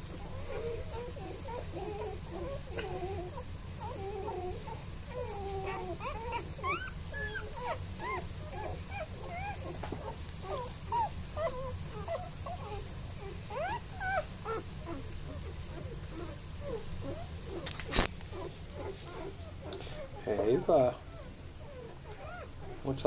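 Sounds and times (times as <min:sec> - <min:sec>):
puppies whimpering and squeaking: 0:00.0 - 0:23.0.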